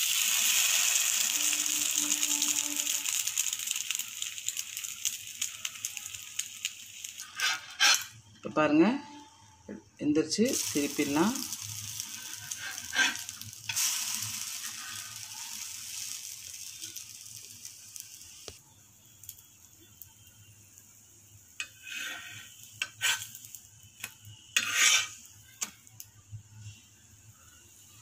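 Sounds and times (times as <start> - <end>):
bread sizzling in butter: 0.0 - 8.2, 10.5 - 28.0
spatula scraping griddle: 0.7 - 3.7, 7.1 - 8.2, 10.5 - 16.1, 21.6 - 25.8.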